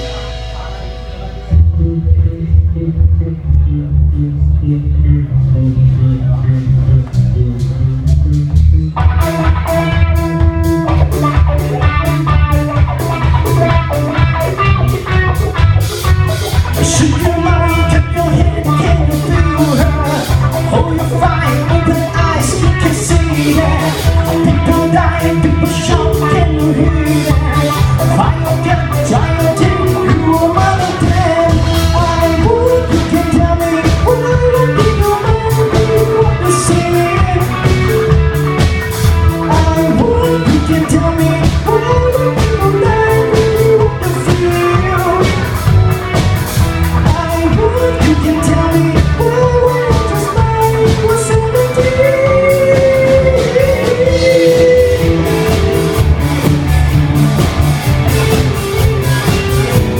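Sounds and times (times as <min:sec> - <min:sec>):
drum kit: 0:00.0 - 0:04.5, 0:05.2 - 0:59.9
electric guitar: 0:00.0 - 0:59.9
lead singer singing: 0:16.4 - 0:56.5.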